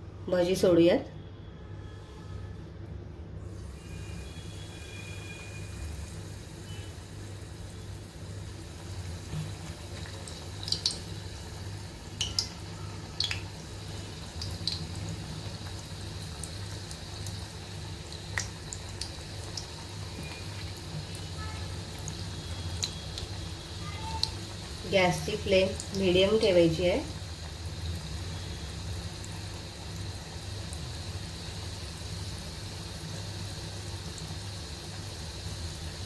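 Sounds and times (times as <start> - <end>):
low steady hum: 0.0 - 36.0
hot oil sizzling: 3.5 - 36.0
crackling pops from frying: 9.2 - 11.5, 12.2 - 13.6, 18.0 - 21.3.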